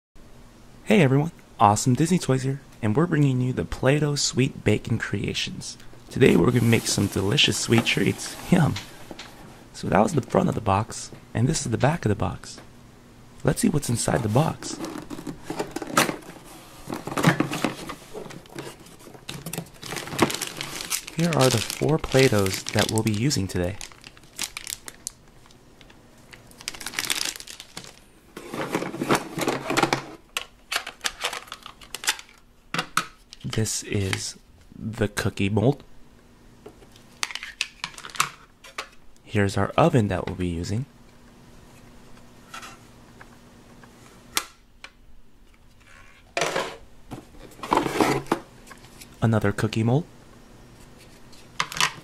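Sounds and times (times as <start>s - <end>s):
plastic toys scraping cardboard box: 6.3s - 9.5s, 47.5s - 48.3s
rustling and knocking in a box: 14.6s - 21.8s
plastic shrink-wrap crinkling: 16.8s - 28.1s, 30.8s - 32.4s.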